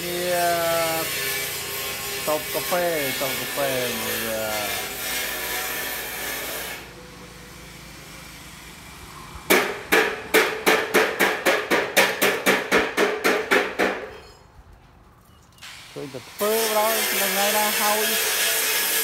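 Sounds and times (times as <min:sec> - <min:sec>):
hammer striking metal: 0:09.5 - 0:14.5.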